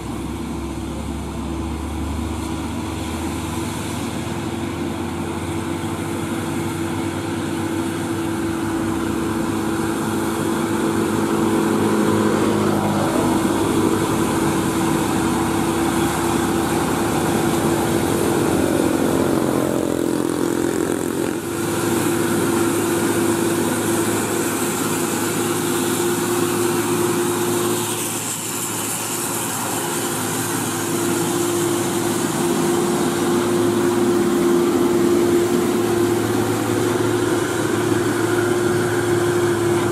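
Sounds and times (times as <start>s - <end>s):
diesel truck engine passing: 0.0s - 39.9s.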